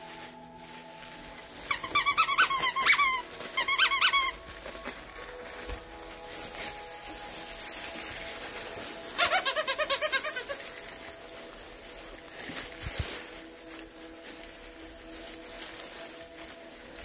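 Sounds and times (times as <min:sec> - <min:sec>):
puppies squeaking: 0:01.7 - 0:04.6, 0:09.1 - 0:11.0.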